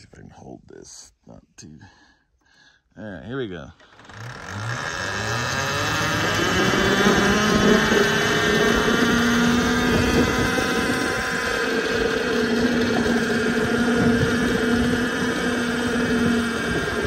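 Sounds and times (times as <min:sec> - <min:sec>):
electric motor whine: 0:03.8 - 0:17.0.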